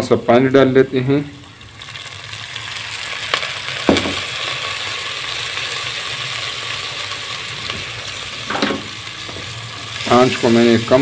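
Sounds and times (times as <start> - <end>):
water sizzling in hot oil: 0.0 - 11.0
sharp knock: 3.9 - 4.2.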